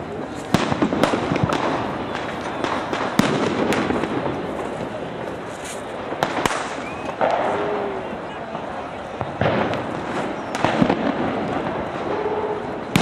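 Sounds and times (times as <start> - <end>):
distant firecracker bangs: 0.0 - 13.0
firecrackers banging: 0.0 - 13.0.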